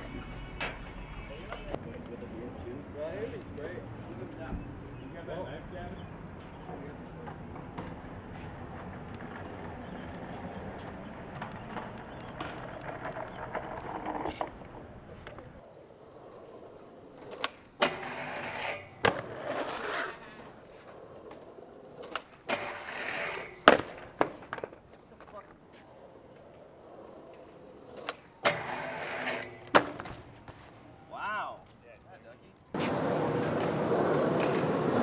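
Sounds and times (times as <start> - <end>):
skateboard wheels rolling on asphalt: 0.0 - 35.0
skateboard popping and landing clacks: 7.2 - 15.6, 17.1 - 20.1, 20.7 - 30.6, 32.8 - 35.0
skateboard grinding metal handrail: 7.6 - 14.9, 15.8 - 24.8, 25.8 - 30.2.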